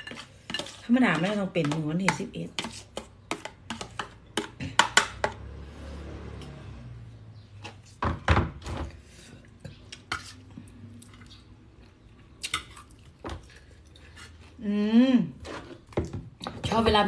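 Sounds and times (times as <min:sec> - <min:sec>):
cutlery clinking on metal bowl: 0:00.0 - 0:05.4.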